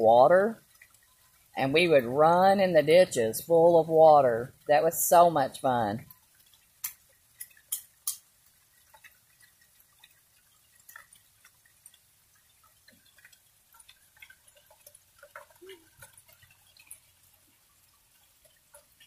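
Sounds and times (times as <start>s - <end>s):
rain drops tapping: 0.0s - 19.0s.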